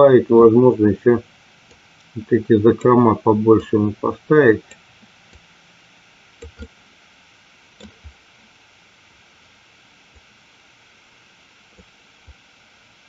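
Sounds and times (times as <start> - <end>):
steady low hiss: 0.0 - 13.0
computer mouse clicks: 6.4 - 6.8, 7.8 - 8.2.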